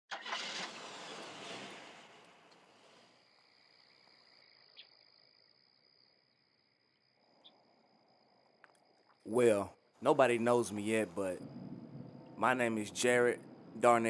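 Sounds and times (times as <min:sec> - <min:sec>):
hiss: 0:00.2 - 0:03.3
crickets chirring: 0:02.7 - 0:14.0.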